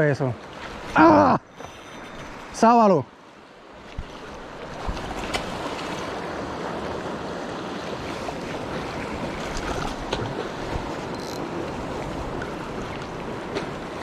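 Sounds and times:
waves washing on rocky shore: 4.0 - 14.0.

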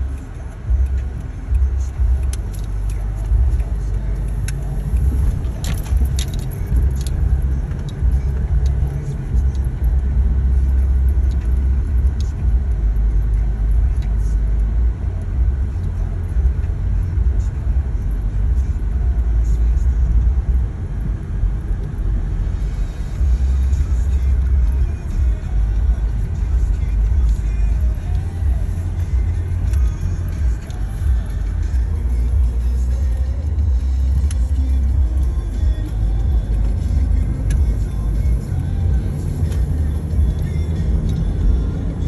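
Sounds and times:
car engine and tyres rumbling: 0.0 - 42.0.

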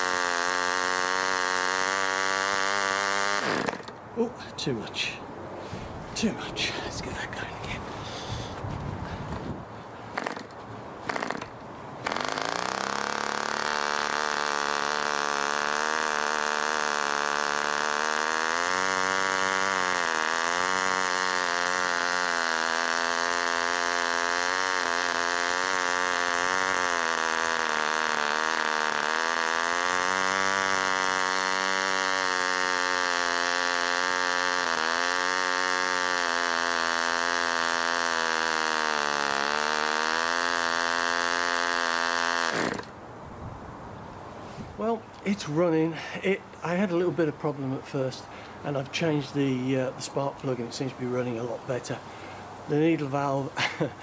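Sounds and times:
model aircraft engine running: 0.0 - 4.0, 11.1 - 42.9.

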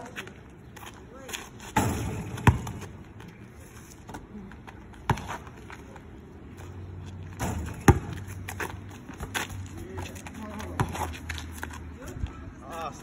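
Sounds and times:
basketball hitting hard surfaces: 1.7 - 3.0, 7.4 - 9.4.

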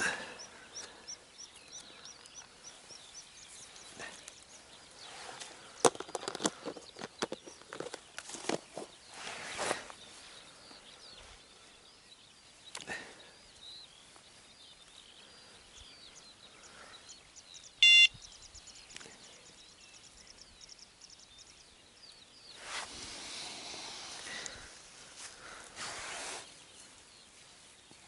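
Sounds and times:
small birds chirping: 0.0 - 28.0
short electronic beep: 17.8 - 18.2.

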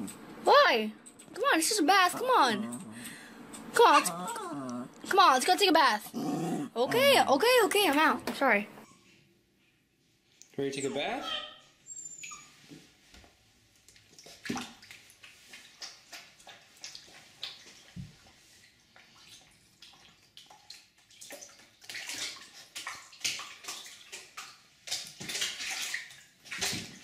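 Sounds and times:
puppy splashing in water: 13.9 - 27.0.

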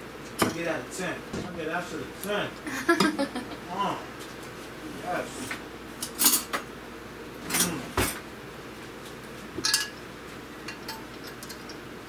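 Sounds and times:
metal utensil clinking on glass dishes: 9.6 - 10.0.

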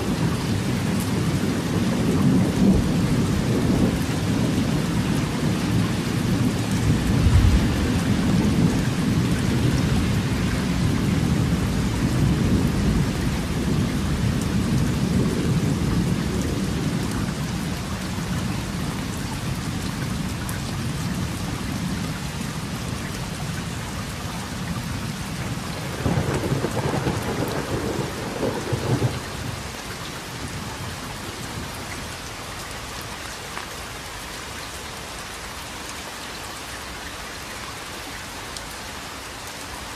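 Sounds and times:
steady rain: 0.0 - 39.9
rolling thunder: 1.2 - 17.6, 25.5 - 29.7.

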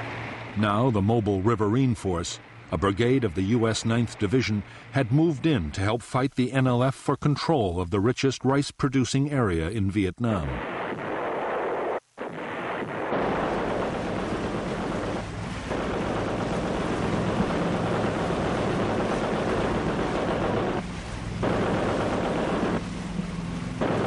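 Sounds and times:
rushing water: 0.0 - 5.6, 11.0 - 24.0
wind noise: 10.6 - 24.0
boat engine running: 12.4 - 24.0.

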